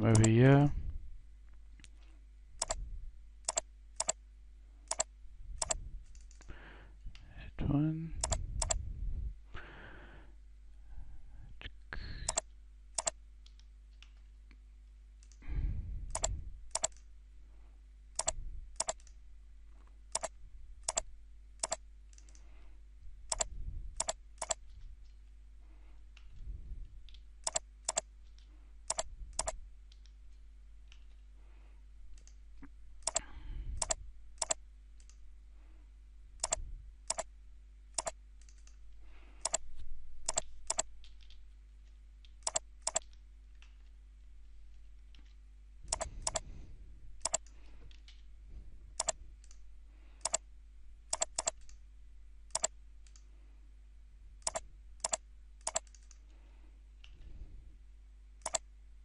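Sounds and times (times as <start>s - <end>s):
computer mouse clicks: 0.0s - 0.4s, 2.6s - 2.8s, 3.4s - 4.2s, 4.9s - 6.5s, 8.2s - 8.8s, 12.3s - 14.2s, 15.2s - 15.4s, 16.1s - 17.1s, 18.2s - 19.2s, 20.1s - 22.5s, 23.3s - 25.2s, 27.0s - 30.2s, 32.1s - 32.4s, 33.0s - 33.2s, 33.8s - 35.2s, 36.4s - 37.3s, 38.0s - 38.8s, 39.4s - 39.6s, 40.2s - 41.4s, 42.2s - 43.8s, 45.9s - 46.5s, 47.2s - 48.2s, 49.0s - 49.6s, 50.2s - 50.4s, 51.1s - 51.8s, 52.5s - 53.3s, 54.4s - 56.3s, 58.4s - 58.7s
faint steady hum: 0.0s - 59.0s.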